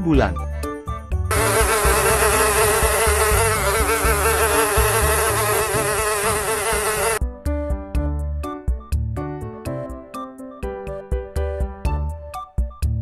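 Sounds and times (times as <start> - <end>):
flies buzzing: 1.3 - 7.2.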